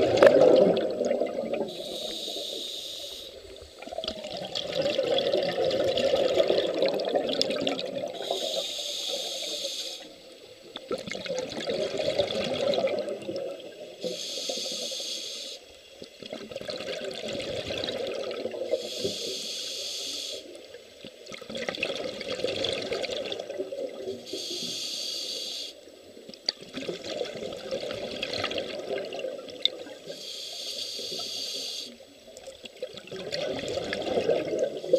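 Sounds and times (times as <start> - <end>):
exhaled air bubbling: 0.0 - 2.3, 3.3 - 8.7, 10.7 - 14.0, 16.1 - 19.0, 20.5 - 24.4, 26.2 - 30.1, 32.3 - 34.9
regulator breathing hiss: 1.7 - 3.5, 8.2 - 10.4, 14.0 - 15.8, 18.8 - 20.6, 24.2 - 25.9, 30.0 - 32.0.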